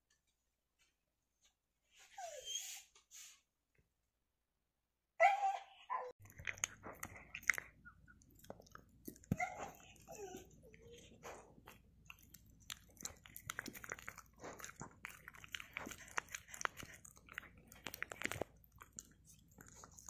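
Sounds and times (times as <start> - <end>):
dog chewing and crunching food: 6.2 - 20.0.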